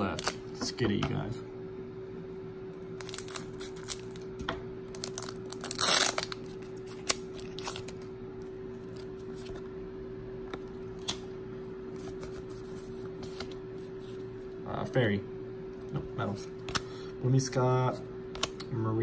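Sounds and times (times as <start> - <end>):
foil wrapper crinkling and ripping: 3.0 - 4.3, 4.9 - 8.1.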